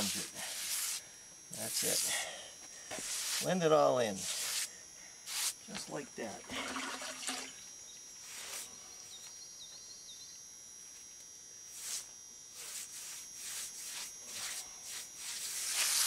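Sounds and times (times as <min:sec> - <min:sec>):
wet sponge swishing on concrete: 0:00.0 - 0:01.0, 0:03.0 - 0:03.5, 0:08.2 - 0:08.7, 0:11.7 - 0:16.0
insects droning: 0:00.0 - 0:16.0.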